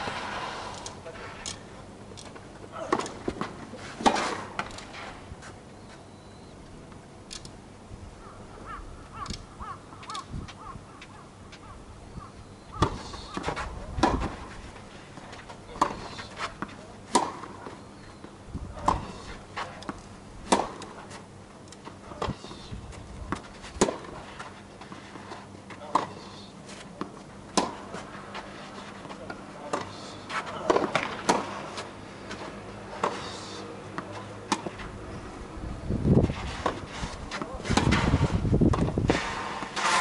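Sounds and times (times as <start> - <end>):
racket hitting tennis ball: 2.8 - 5.0, 12.8 - 14.6, 15.7 - 17.7, 18.8 - 21.2, 23.3 - 25.0, 27.0 - 33.3, 34.0 - 34.8, 36.2 - 40.0
tennis ball bouncing: 15.7 - 17.6, 19.8 - 21.0, 27.0 - 28.1, 34.0 - 34.8.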